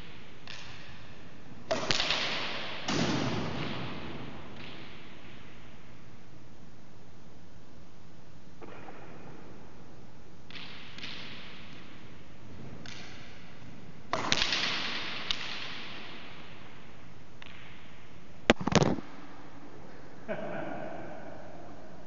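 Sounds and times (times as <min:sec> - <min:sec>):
racquet cracking ball: 0:00.0 - 0:05.6, 0:10.5 - 0:16.6, 0:18.5 - 0:19.2.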